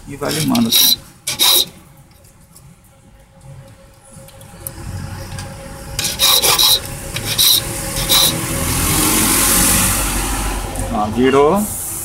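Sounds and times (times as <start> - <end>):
hand file rasping on metal key: 0.3 - 1.8, 6.0 - 8.4.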